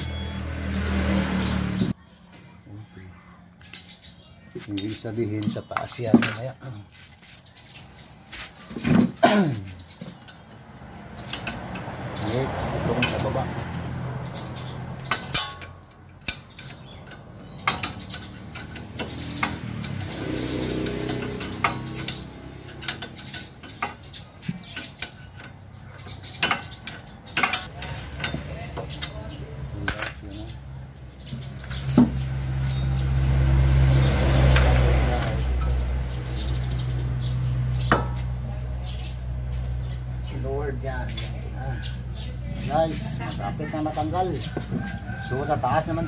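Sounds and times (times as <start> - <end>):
metal tools clinking on steel: 4.6 - 6.7, 8.7 - 30.7, 31.4 - 33.7, 39.6 - 42.4.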